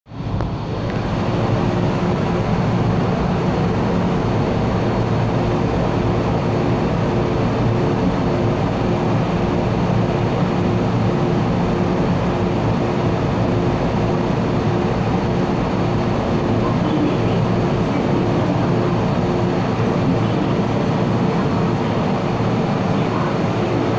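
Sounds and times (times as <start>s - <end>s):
electric train humming: 0.1s - 23.9s.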